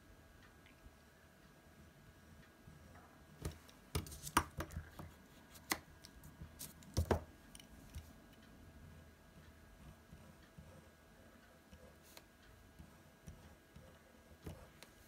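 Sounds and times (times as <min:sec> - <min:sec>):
pencil and eraser tapping on desk: 0:03.4 - 0:07.3.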